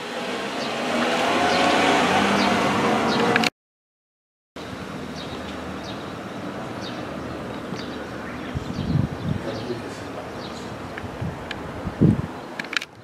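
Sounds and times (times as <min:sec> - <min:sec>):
high bird chirps: 0:05.1 - 0:10.8
wind buffeting microphone: 0:05.8 - 0:13.0.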